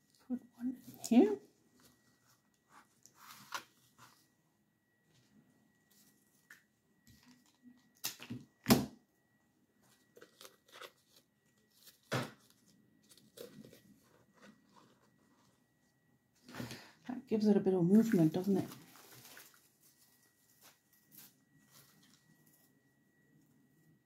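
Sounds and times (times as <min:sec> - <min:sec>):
flower stems rustling: 0:17.9 - 0:22.3.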